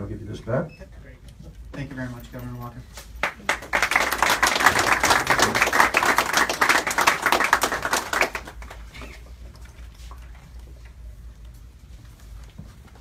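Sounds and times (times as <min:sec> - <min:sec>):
small group clapping: 0:03.0 - 0:09.3.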